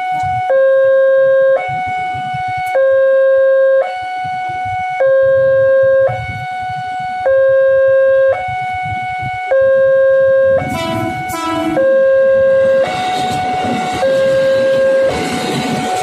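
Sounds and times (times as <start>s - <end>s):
two-tone crossing alarm: 0.0s - 16.0s.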